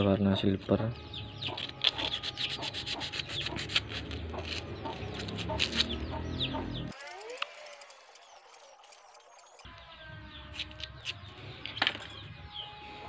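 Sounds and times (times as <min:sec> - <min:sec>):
chickens clucking: 0:01.2 - 0:07.8
sandpaper rasping on iron rod: 0:01.4 - 0:06.1, 0:06.9 - 0:09.7.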